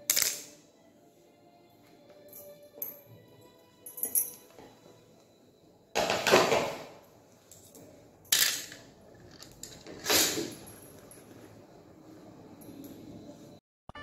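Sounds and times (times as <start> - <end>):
kitchen items set on stone floor: 5.9 - 11.7.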